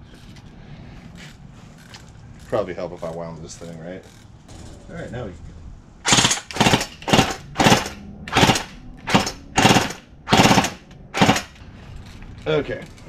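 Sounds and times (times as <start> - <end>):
airsoft gun full auto bursts: 6.0 - 11.6.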